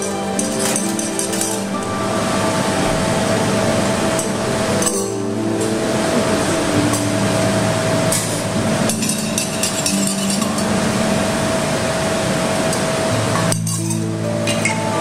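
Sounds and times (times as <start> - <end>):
steady low humming tones: 0.0 - 15.0
metal spoon clinking in cup: 9.0 - 10.7, 13.6 - 14.8.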